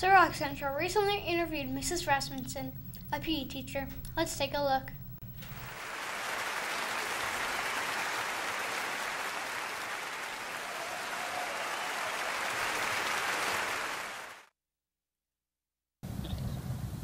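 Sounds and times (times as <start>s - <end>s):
audience applause: 5.4s - 14.5s.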